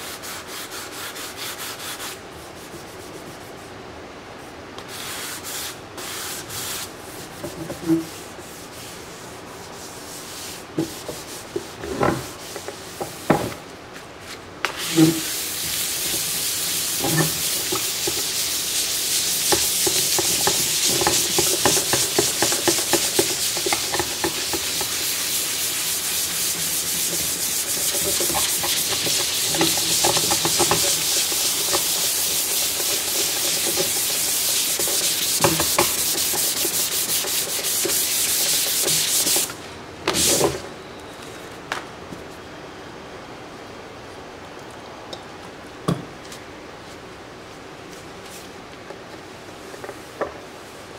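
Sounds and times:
sanding sponge rasping on resin: 0:00.0 - 0:03.6, 0:14.8 - 0:39.6.

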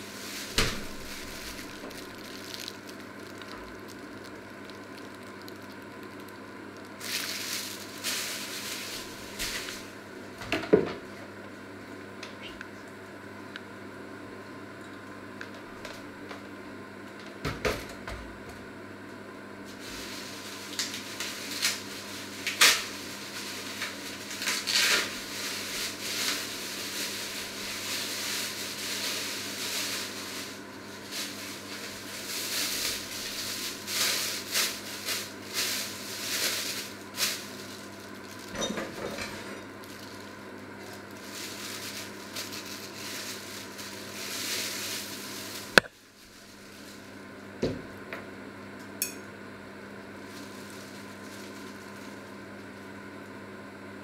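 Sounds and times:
steady low hum: 0:00.0 - 0:54.0
rustling: 0:00.2 - 0:09.9, 0:39.8 - 0:47.1.

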